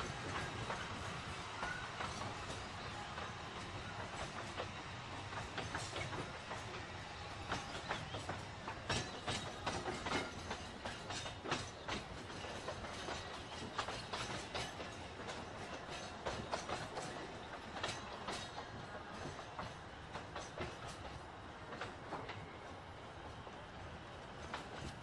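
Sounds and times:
train rolling: 0.0 - 25.0
wheels clicking over rail joints: 7.5 - 22.5.

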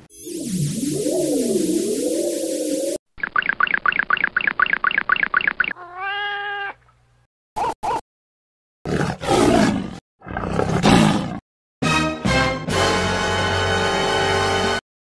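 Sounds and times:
cat meowing: 5.8 - 6.8
big cat roaring: 8.9 - 11.4
music: 11.8 - 14.8.

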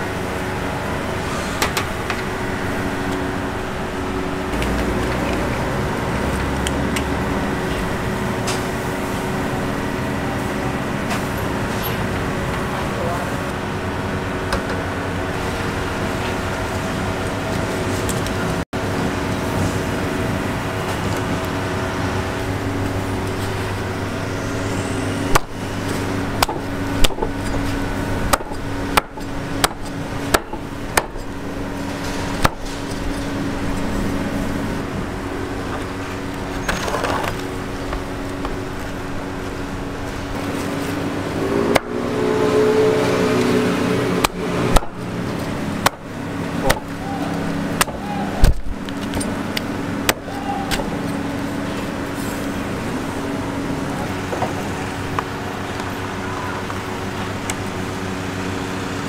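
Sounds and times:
steady hum: 0.0 - 59.0
cleaver chopping on wooden block: 28.3 - 31.2.

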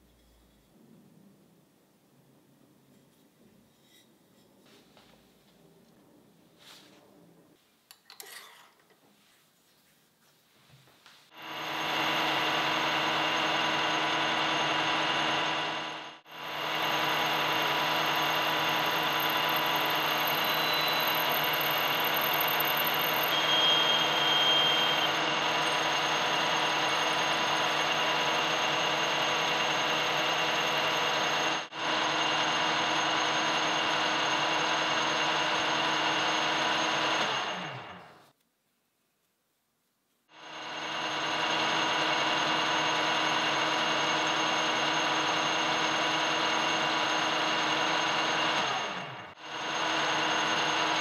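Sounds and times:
metal lathe running: 11.4 - 38.0, 40.4 - 51.0.

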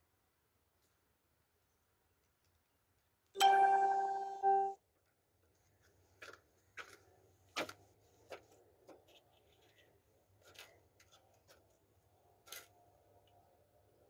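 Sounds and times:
loud ringing tone: 3.4 - 4.8.

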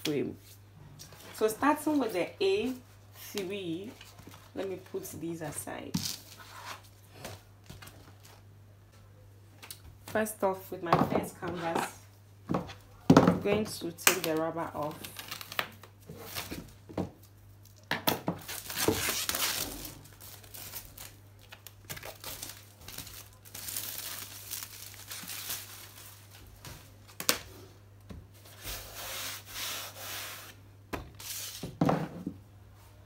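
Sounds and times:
plastic wrap rustling and tearing: 14.8 - 27.4.

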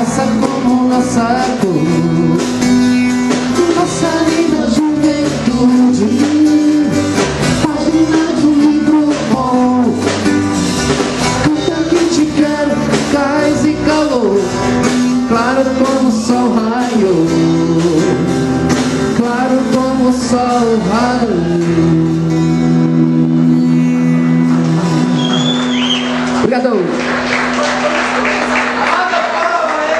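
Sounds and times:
man singing: 0.0 - 10.5, 11.2 - 25.7
rock band playing: 0.0 - 29.9.

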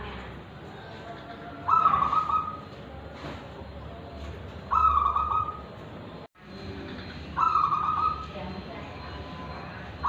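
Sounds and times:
dove cooing: 0.7 - 2.8, 4.0 - 5.8, 7.0 - 8.4.

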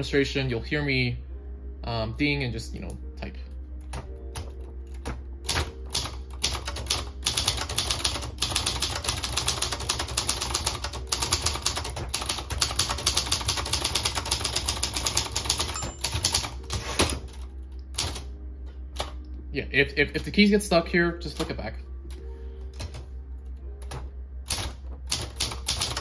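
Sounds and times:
manual typewriter typing: 3.9 - 17.4, 18.0 - 18.3, 23.8 - 26.0.

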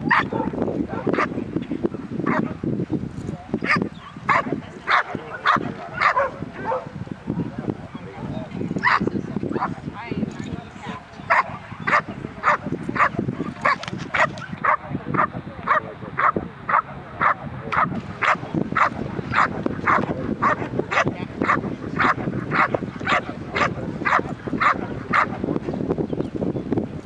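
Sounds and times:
dog barking: 0.0 - 1.4, 2.3 - 2.6, 3.6 - 8.0, 8.8 - 9.8, 10.9 - 25.4.

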